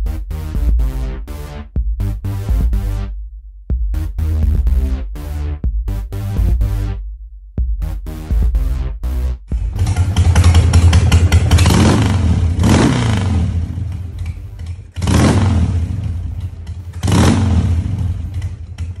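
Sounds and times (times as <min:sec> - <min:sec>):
motorcycle engine revving: 0:09.5 - 0:19.0.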